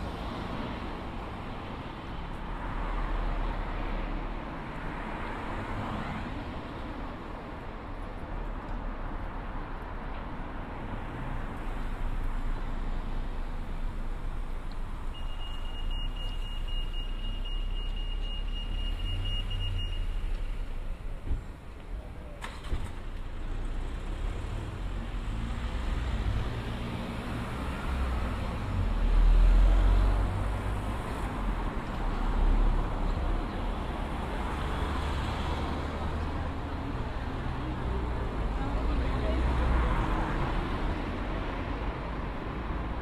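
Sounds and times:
road traffic passing: 0.0 - 43.0.

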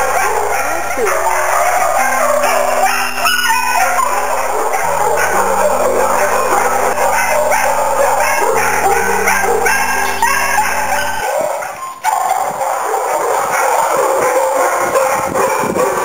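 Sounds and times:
backing track of held chords: 0.0 - 11.3
dogs barking: 0.0 - 16.0.

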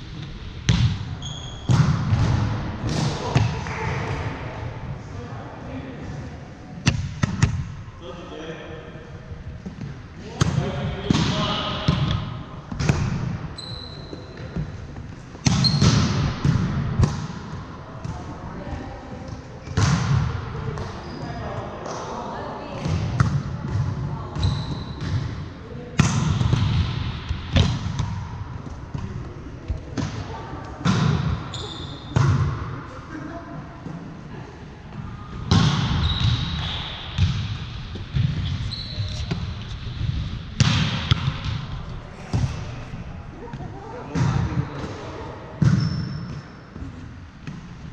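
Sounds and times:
sneakers squeaking on floor: 0.7 - 2.4, 12.9 - 16.1, 20.7 - 21.5, 24.3 - 25.3, 31.4 - 32.4, 35.0 - 43.2, 45.6 - 47.6
sneaker squeak on floor: 1.2 - 1.8, 13.6 - 14.6, 15.5 - 16.0, 20.8 - 21.4, 24.4 - 25.2, 31.5 - 32.2, 36.0 - 37.3, 38.3 - 39.6, 45.6 - 46.6
volleyball being hit: 1.7 - 4.3, 40.0 - 42.7.

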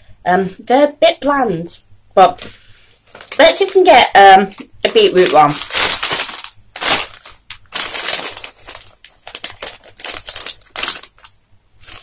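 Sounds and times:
plastic crisp packet crinkling: 3.1 - 12.0.

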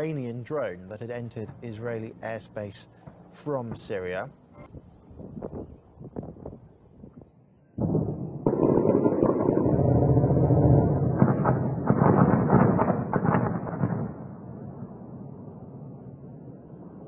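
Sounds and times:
explosions banging and rumbling: 7.8 - 17.0.

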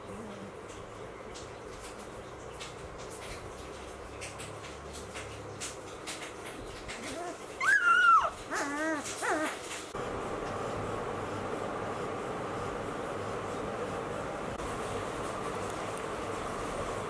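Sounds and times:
puppy whimpering: 6.9 - 9.7.

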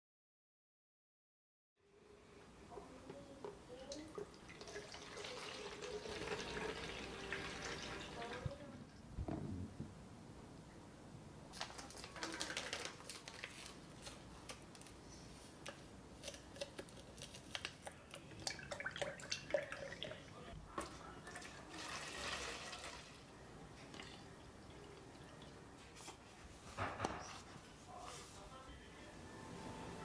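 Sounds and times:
milk pouring and splashing: 4.1 - 8.4, 11.7 - 13.5, 16.2 - 23.2
paper sachet rustling: 11.5 - 15.1.

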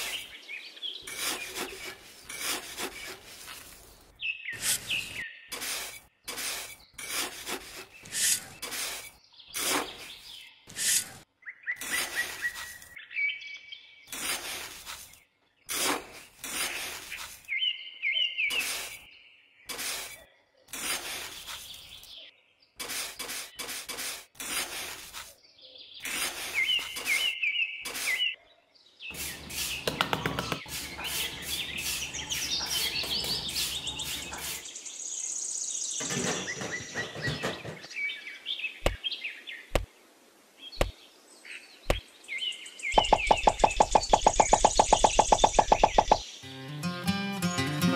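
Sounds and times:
trowel scraping in damp sand: 0.0 - 0.4, 1.0 - 13.0, 14.1 - 17.6, 18.5 - 19.1, 19.7 - 22.2, 22.8 - 25.4, 26.0 - 28.3, 29.1 - 29.8, 30.4 - 34.7
birds chirping: 0.0 - 23.8, 24.9 - 46.5.

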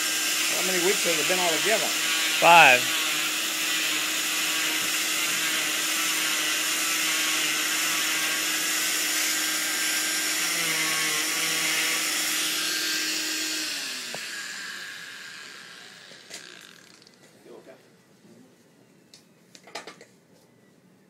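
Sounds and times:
oscillating cast saw whine: 8.4 - 17.2.

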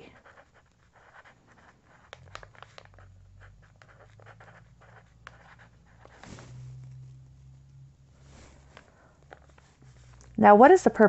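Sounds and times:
pen writing on paper: 0.2 - 6.3.

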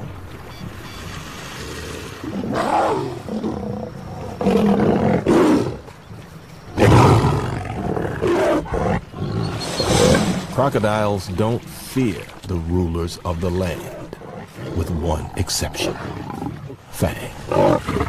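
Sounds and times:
lionesses snarling and roaring: 1.4 - 10.6, 13.4 - 18.0.

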